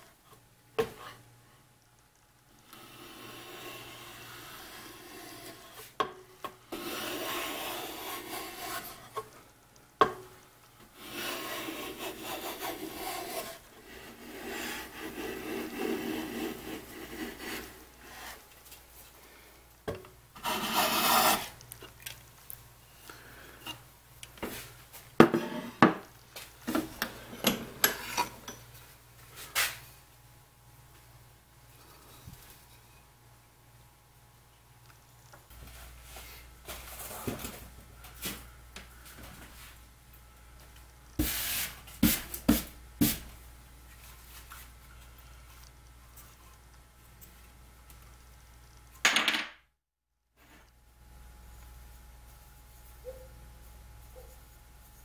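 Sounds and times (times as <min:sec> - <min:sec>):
hand plane rasping on wood: 0:06.8 - 0:09.1, 0:11.0 - 0:18.3, 0:20.4 - 0:21.5.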